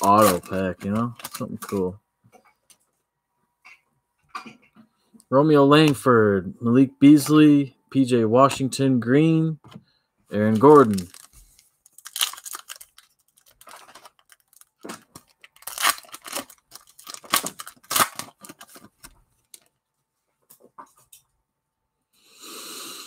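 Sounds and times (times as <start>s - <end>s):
cards being handled: 0.0s - 1.9s, 10.4s - 19.7s
plastic wrapper tearing and crinkling: 0.0s - 1.9s, 10.4s - 19.7s.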